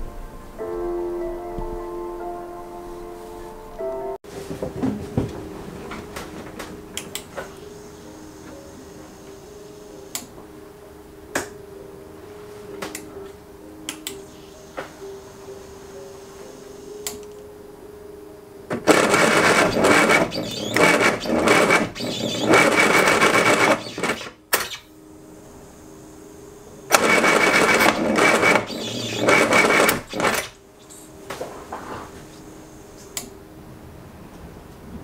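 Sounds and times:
engine cranking on starter: 0:18.9 - 0:24.3, 0:26.9 - 0:30.5.

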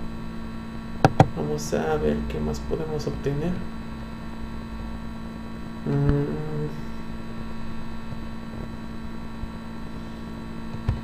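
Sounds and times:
electrical mains hum: 0:00.0 - 0:11.0
person's hesitation sound: 0:05.8 - 0:07.1.

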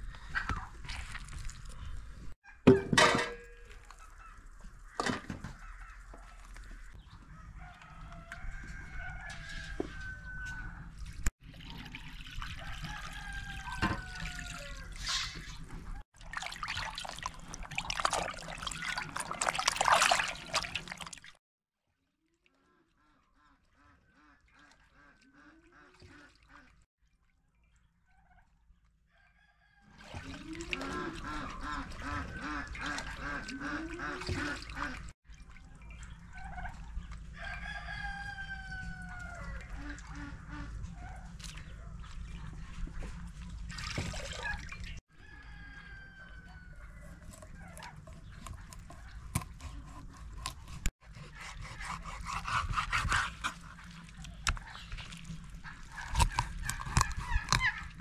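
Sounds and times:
water splashing in a basin: 0:00.1 - 0:07.0, 0:10.9 - 0:21.4, 0:29.9 - 0:46.4, 0:53.3 - 0:58.0
rooster crowing: 0:07.4 - 0:10.8, 0:12.6 - 0:14.9, 0:37.4 - 0:39.5, 0:45.1 - 0:47.0.

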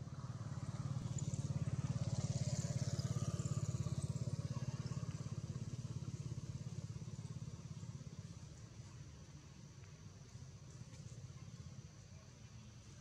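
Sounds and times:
small engine running: 0:00.0 - 0:09.6.

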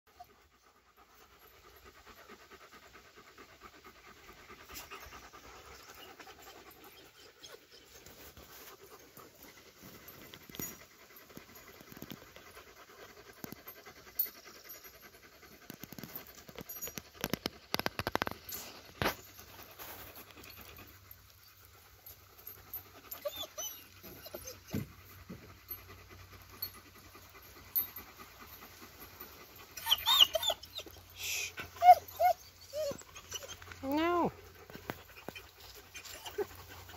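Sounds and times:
dogs panting: 0:00.1 - 0:36.9.

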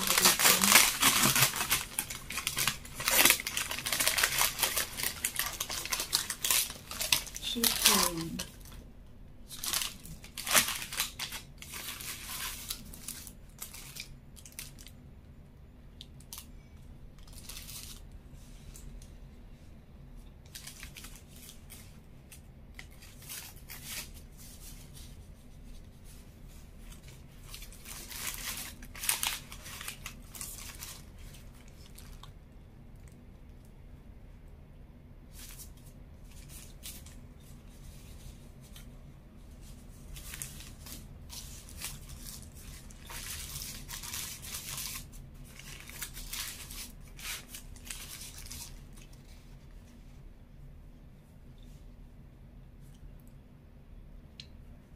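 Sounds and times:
paper wrapper crinkling: 0:00.0 - 0:15.0, 0:16.0 - 0:19.1, 0:20.4 - 0:32.4, 0:35.2 - 0:50.2.

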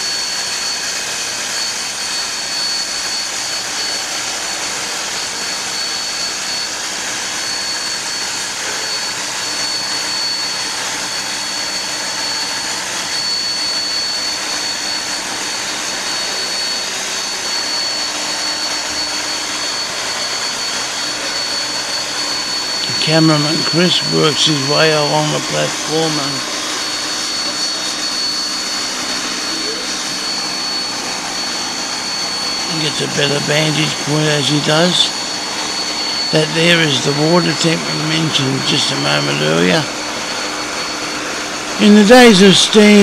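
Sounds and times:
steam locomotive hissing steam: 0:13.4 - 0:40.5, 0:41.1 - 0:43.0.

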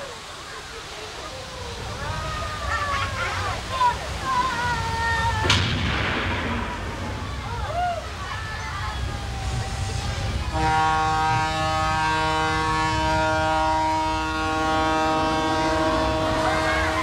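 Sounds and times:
low rumble: 0:04.7 - 0:11.7
horn blaring long note: 0:10.5 - 0:17.0.

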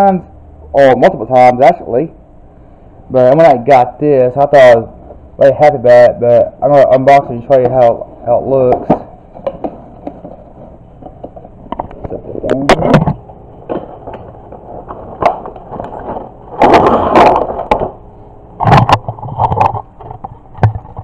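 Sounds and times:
packaging handling clicks and knocks: 0:11.0 - 0:18.0
packaging rustling and crackling: 0:13.6 - 0:18.0.

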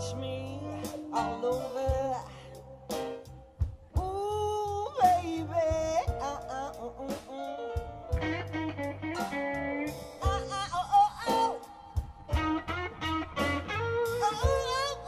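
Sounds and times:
bass line: 0:00.0 - 0:15.0
drums: 0:00.0 - 0:15.0
electric guitar bending: 0:08.0 - 0:15.0.

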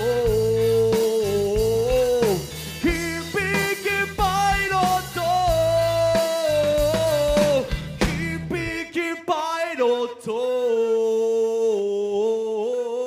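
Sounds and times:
live band playing: 0:00.0 - 0:08.8.

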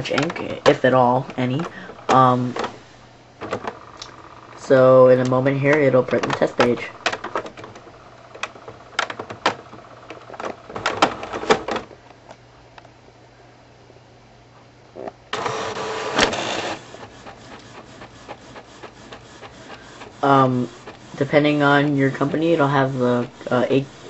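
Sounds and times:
printer loud whir: 0:00.0 - 0:04.8, 0:15.3 - 0:24.0
low steady hum: 0:00.0 - 0:24.0
printer mechanical clicks: 0:15.3 - 0:24.0.

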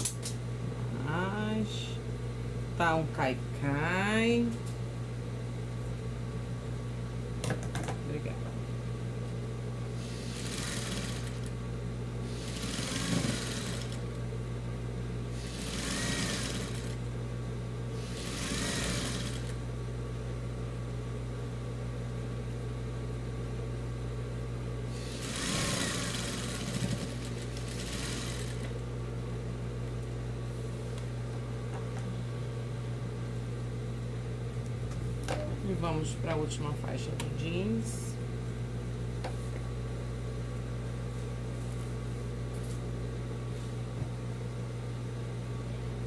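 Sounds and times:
steady low hum: 0:00.0 - 0:46.0
sewing machine stitching: 0:10.2 - 0:11.5, 0:12.4 - 0:14.0, 0:15.4 - 0:17.0, 0:18.0 - 0:19.6, 0:25.1 - 0:28.7.

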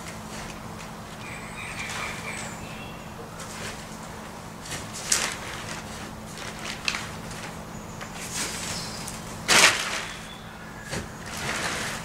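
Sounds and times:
silage scraping and rustling: 0:03.4 - 0:12.0.

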